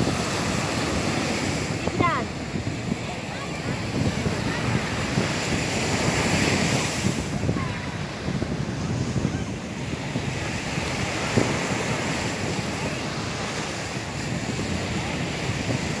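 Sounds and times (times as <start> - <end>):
surf breaking on shore: 0.0 - 16.0
wind buffeting microphone: 0.0 - 16.0.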